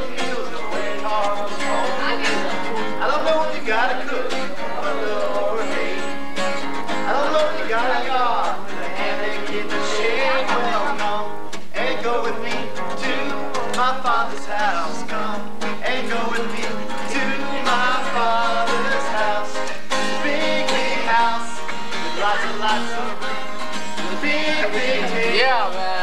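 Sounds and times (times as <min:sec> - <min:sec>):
acoustic guitar: 0:00.0 - 0:26.0
person singing: 0:00.0 - 0:26.0.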